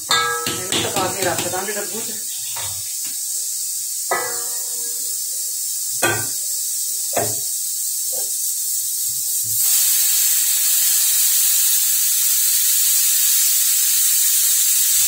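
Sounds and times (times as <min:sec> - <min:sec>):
steel utensils clanking: 0:00.0 - 0:01.9, 0:04.1 - 0:05.0
pressure cooker hissing steam: 0:00.0 - 0:15.0.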